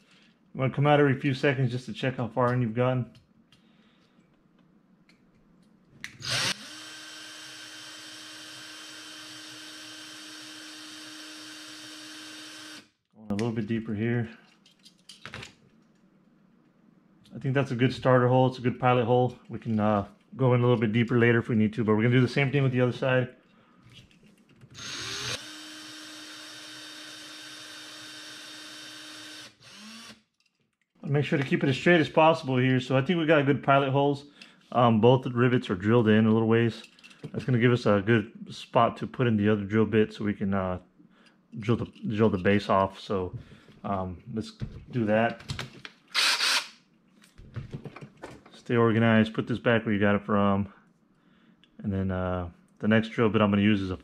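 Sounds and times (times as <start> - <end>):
cordless drill whining: 6.1 - 12.9, 24.8 - 30.2, 46.1 - 46.8.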